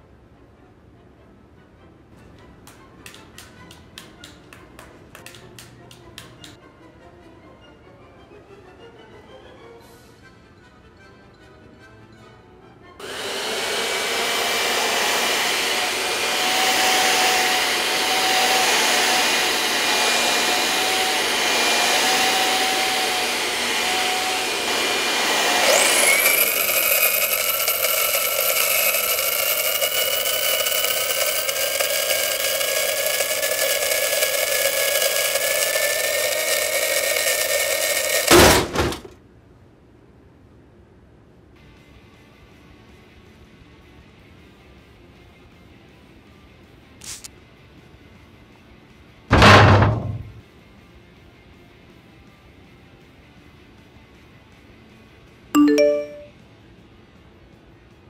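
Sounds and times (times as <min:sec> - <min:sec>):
appliance motor whining: 0:13.0 - 0:38.7.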